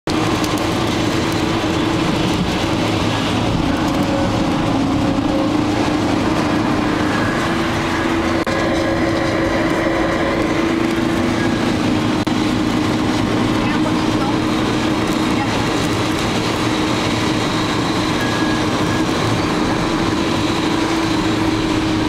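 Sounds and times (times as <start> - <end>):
car driving on wet road: 0.0 - 22.0.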